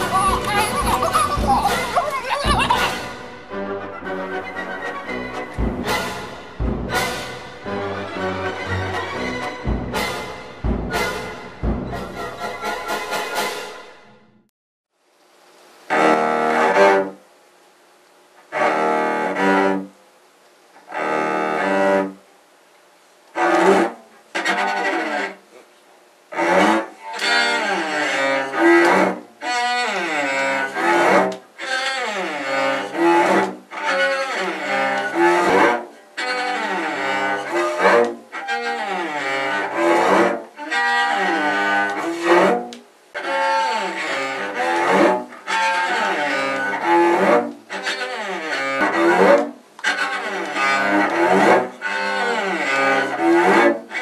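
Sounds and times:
low bowed string instrument: 0:00.0 - 0:14.1, 0:15.9 - 0:17.2, 0:18.5 - 0:20.0, 0:20.8 - 0:22.2, 0:23.3 - 0:25.6, 0:26.2 - 0:54.0.

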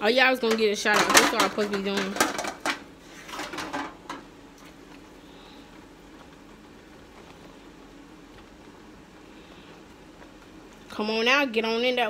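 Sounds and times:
crab legs knocking and clattering: 0:00.4 - 0:05.0.

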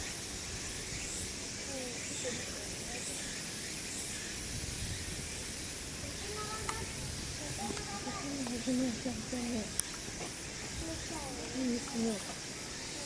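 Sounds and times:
hissing outdoor noise: 0:00.0 - 0:13.0
faint distant voices: 0:05.6 - 0:13.0.

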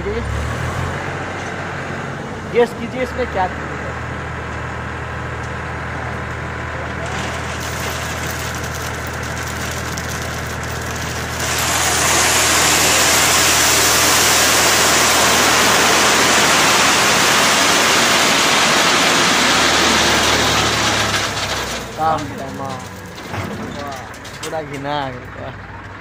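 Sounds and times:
tractor engine running: 0:01.1 - 0:26.0
gravel sliding out rushing: 0:07.0 - 0:24.5.

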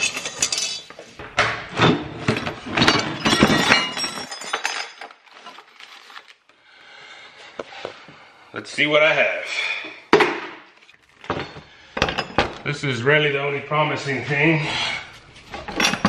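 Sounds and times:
metal parts clinking in drawer: 0:00.0 - 0:01.1, 0:15.5 - 0:16.0.

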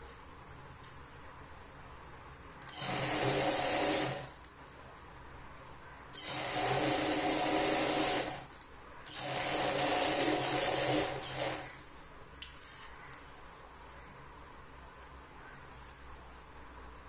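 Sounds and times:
sewing machine stitching: 0:02.7 - 0:04.4, 0:06.2 - 0:11.8.

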